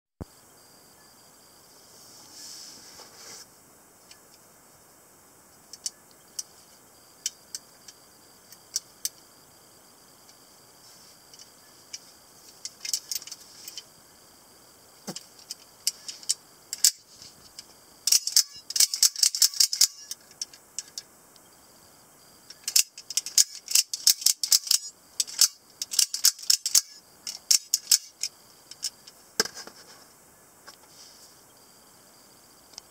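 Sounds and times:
metallic clicking: 0:15.2 - 0:17.0, 0:17.6 - 0:21.0, 0:22.5 - 0:29.2.

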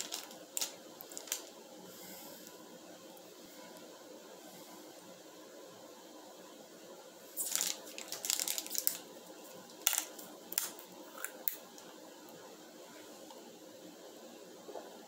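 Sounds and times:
plastic bottle crackling: 0:00.0 - 0:01.6, 0:07.4 - 0:11.8.

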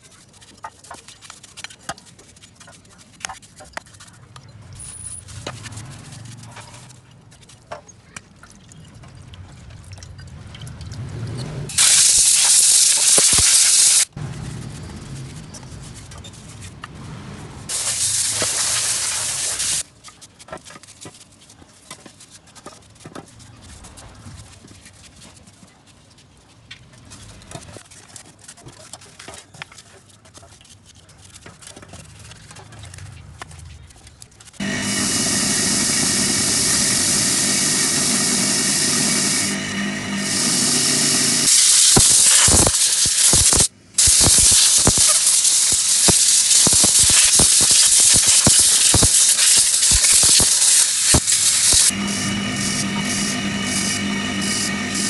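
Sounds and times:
hissing sprays: 0:11.7 - 0:14.1, 0:17.7 - 0:19.8, 0:34.6 - 0:55.0.

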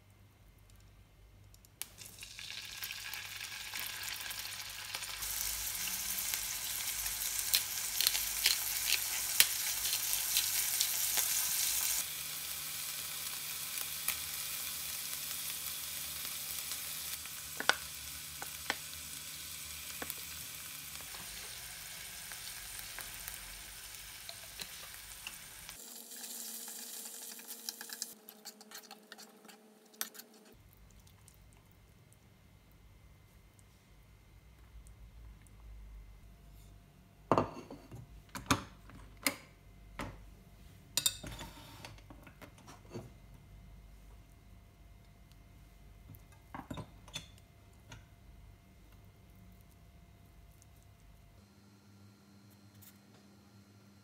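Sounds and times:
meat sizzling in a frying pan: 0:01.8 - 0:28.2.

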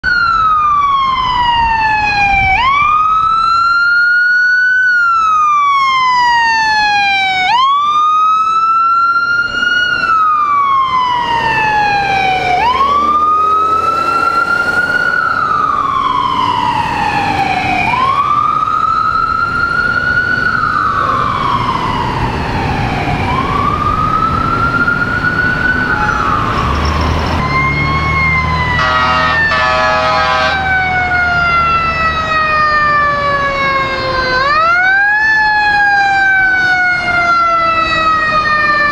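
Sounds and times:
ambulance siren wailing: 0:00.0 - 0:38.9
second siren falling tone: 0:00.0 - 0:38.9
rapid stuttering horn: 0:28.8 - 0:30.6.

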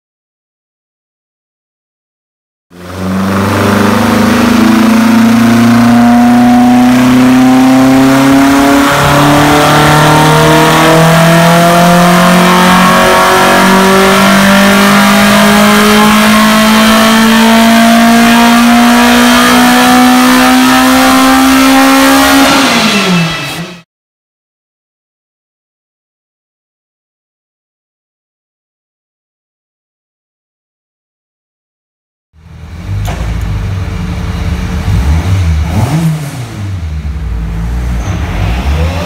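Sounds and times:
rally car engine running: 0:02.7 - 0:23.8, 0:32.4 - 0:39.0.

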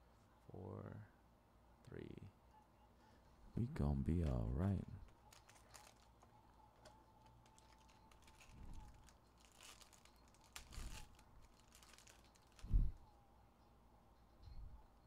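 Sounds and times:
foil wrapper crinkling and tearing: 0:05.0 - 0:06.3, 0:07.2 - 0:12.7.

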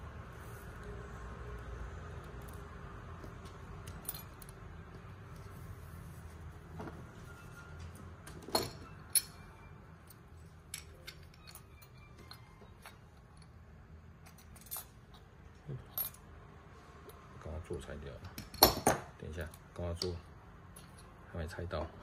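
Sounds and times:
low room hum: 0:00.0 - 0:22.0
small metal parts clicking: 0:10.0 - 0:13.6, 0:14.2 - 0:16.2.

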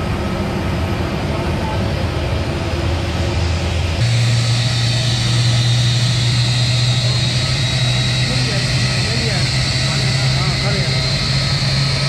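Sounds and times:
airliner engines droning: 0:00.0 - 0:12.0
thin high whine: 0:02.7 - 0:12.0.

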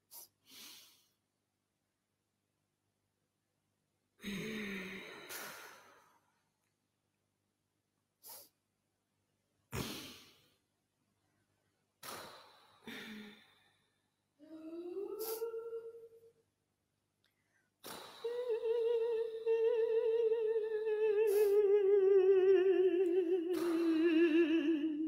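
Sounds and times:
sighs and sharp exhalations: 0:00.0 - 0:01.2, 0:04.2 - 0:06.4, 0:08.2 - 0:08.6, 0:09.7 - 0:10.6, 0:12.0 - 0:14.0, 0:17.4 - 0:18.6.

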